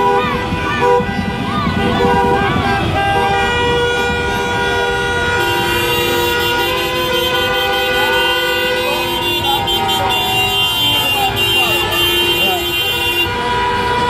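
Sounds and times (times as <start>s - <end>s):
car horns honking: 0.0s - 14.0s
idling traffic rumble: 0.0s - 14.0s.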